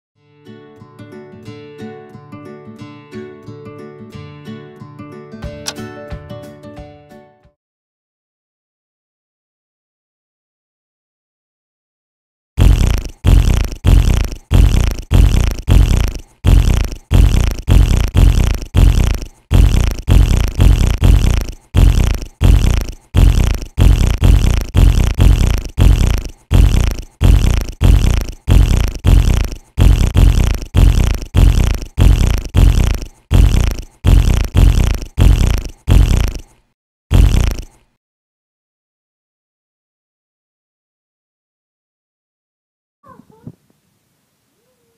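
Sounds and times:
deep fart sounds: 0:12.6 - 0:37.9.

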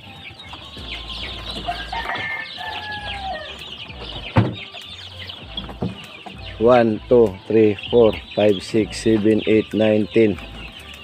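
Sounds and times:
chicks peeping: 0:00.0 - 0:11.0
sharp knocks on wood: 0:04.3 - 0:04.7, 0:05.6 - 0:06.4.

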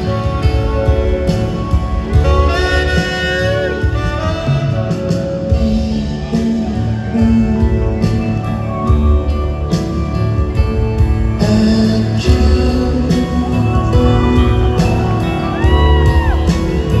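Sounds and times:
alto saxophone solo: 0:00.0 - 0:06.0
live rock band: 0:00.0 - 0:17.0.

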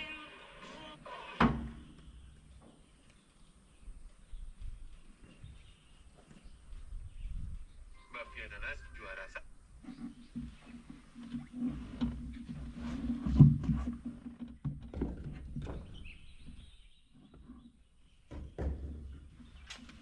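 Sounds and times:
sharp knocks and clatters: 0:10.0 - 0:17.6, 0:18.2 - 0:20.0.

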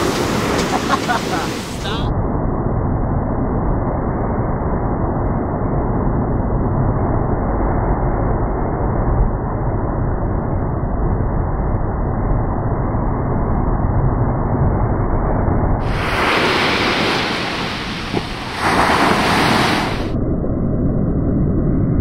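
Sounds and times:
muffled breaking surf: 0:00.0 - 0:02.1, 0:15.7 - 0:20.2
wind: 0:00.0 - 0:22.0.

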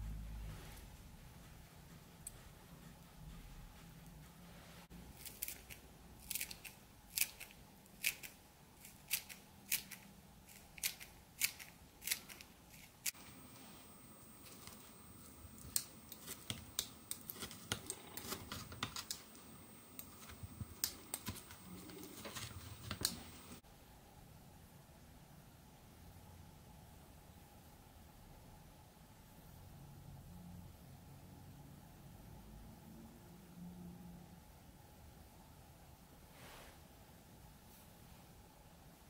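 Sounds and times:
scissors snipping green onion: 0:05.2 - 0:23.6.

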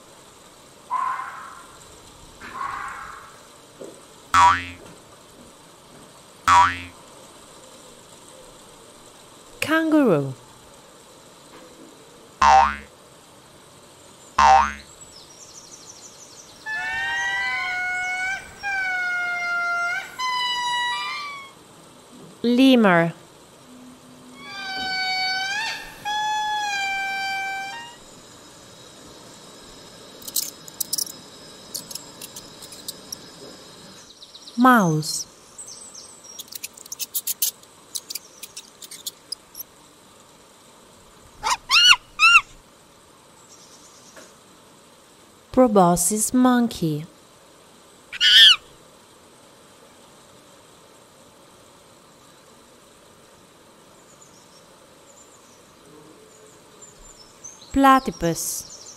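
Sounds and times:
lemur wailing calls: 0:00.9 - 0:01.8, 0:02.4 - 0:03.5, 0:16.5 - 0:21.6, 0:24.3 - 0:28.3, 0:31.7 - 0:33.3, 0:36.4 - 0:39.6, 0:41.4 - 0:42.6, 0:48.2 - 0:48.7
cartoon boing effect: 0:04.4 - 0:04.8, 0:06.5 - 0:07.0, 0:12.4 - 0:12.9, 0:14.4 - 0:14.9
mouse squeaking: 0:30.2 - 0:33.3, 0:36.3 - 0:39.6, 0:41.4 - 0:42.5, 0:48.2 - 0:48.6.

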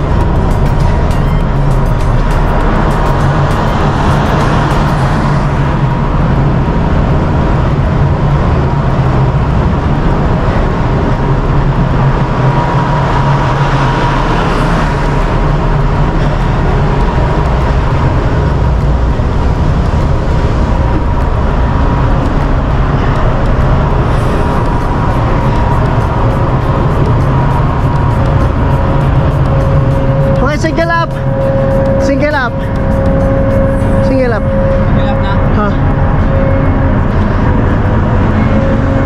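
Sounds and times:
ship machinery drone: 0:00.0 - 0:39.0
thin steady whine: 0:00.0 - 0:39.0.

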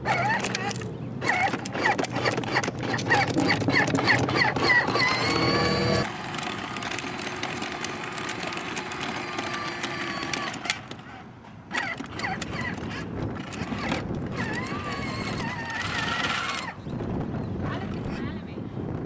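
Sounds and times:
plastic wheels rattling on concrete: 0:00.0 - 0:16.9, 0:17.6 - 0:18.4
electric motor whine: 0:04.4 - 0:10.9, 0:11.7 - 0:16.8.

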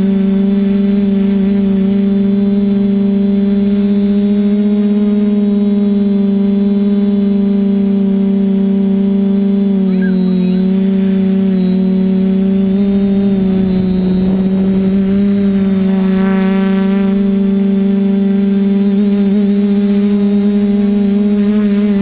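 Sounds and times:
quadcopter propellers humming: 0:00.0 - 0:22.0.

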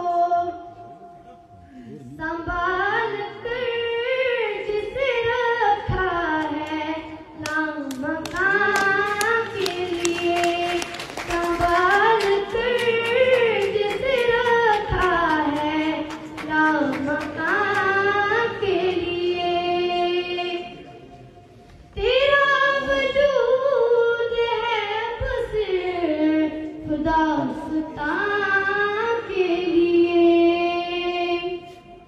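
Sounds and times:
person singing unaccompanied: 0:02.1 - 0:21.1
hand claps: 0:06.3 - 0:18.1.

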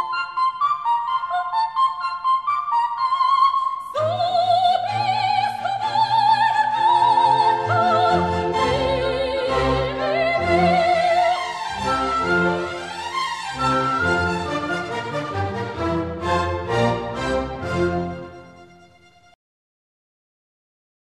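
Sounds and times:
operatic singing with vibrato: 0:02.9 - 0:18.5
orchestra playing: 0:05.2 - 0:19.4.

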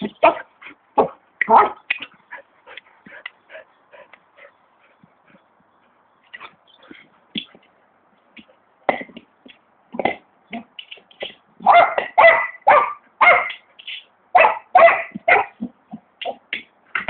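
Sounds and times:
dog barking: 0:01.5 - 0:01.8, 0:11.6 - 0:13.6, 0:14.4 - 0:15.6.

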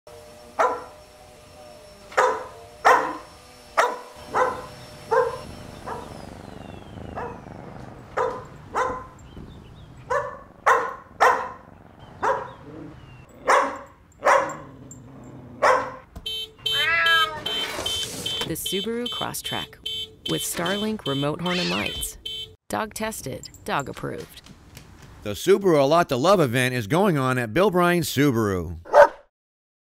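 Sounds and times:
large dog barking: 0:00.6 - 0:00.9, 0:02.1 - 0:06.2, 0:07.0 - 0:09.3, 0:10.0 - 0:16.1, 0:28.9 - 0:29.2.

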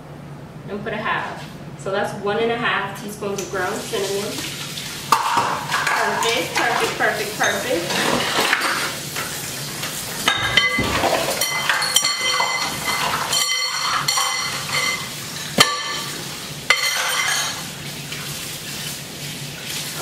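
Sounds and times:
metal utensils and dishes clinking: 0:05.2 - 0:09.4, 0:10.2 - 0:17.7.

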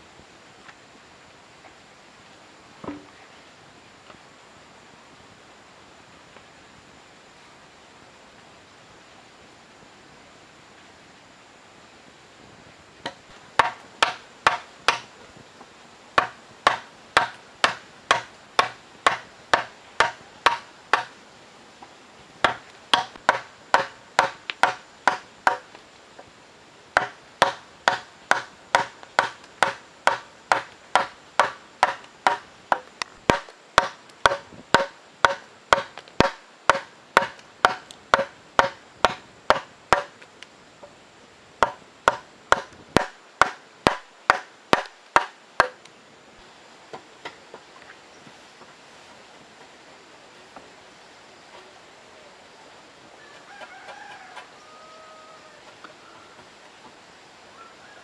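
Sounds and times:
chisel struck into wood: 0:13.0 - 0:15.1, 0:16.2 - 0:21.1, 0:27.0 - 0:40.1.

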